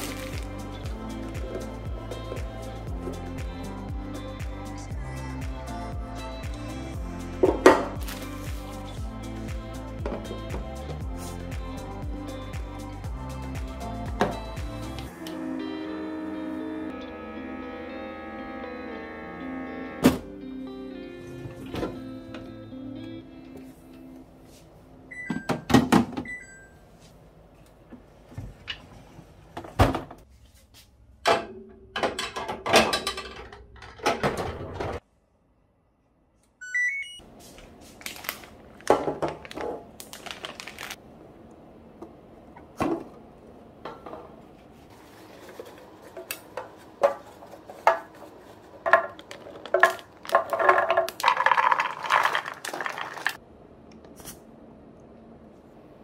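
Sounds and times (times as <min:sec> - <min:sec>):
plastic containers knocked and slid: 0:44.9 - 0:53.4.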